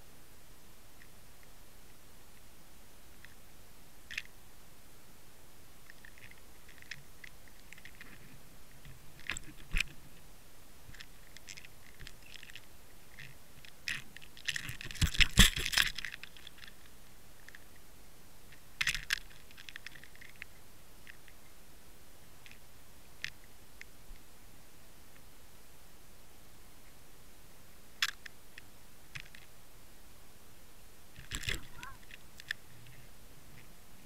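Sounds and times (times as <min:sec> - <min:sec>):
underwater clicks and crackles: 0:05.8 - 0:10.2, 0:10.9 - 0:17.8, 0:18.5 - 0:21.4, 0:28.0 - 0:29.5, 0:31.2 - 0:33.7.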